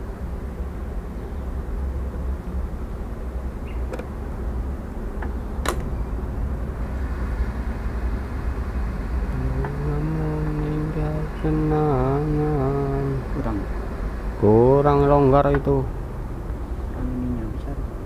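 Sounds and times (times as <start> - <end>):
low rumble of machinery: 0.0 - 18.0
man humming: 9.3 - 13.7.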